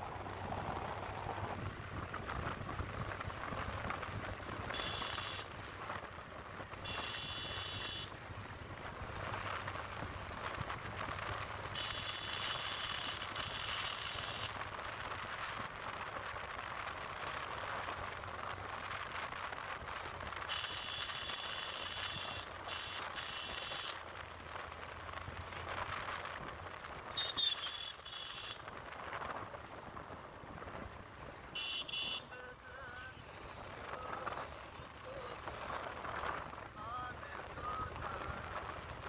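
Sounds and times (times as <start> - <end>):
wind rushing over microphone: 0.0 - 4.9, 28.7 - 31.4, 33.4 - 39.0
motorcycle running: 0.0 - 39.0.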